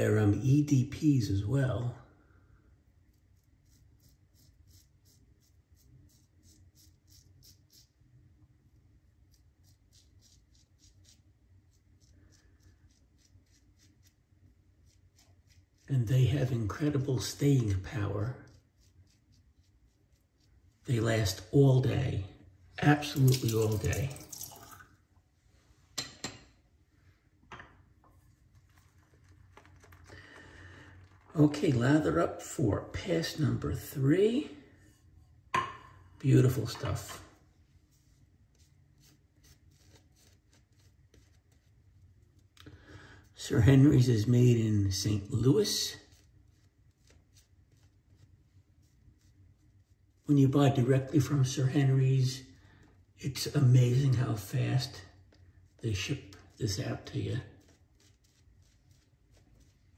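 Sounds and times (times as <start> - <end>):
razor scraping stubble: 3.1 - 8.0, 9.2 - 22.0.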